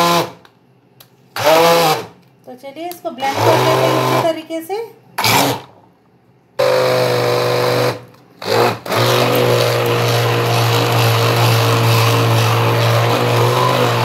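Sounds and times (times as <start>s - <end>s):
immersion blender running: 0.0s - 0.4s, 1.4s - 2.1s, 3.3s - 4.2s, 6.6s - 14.0s.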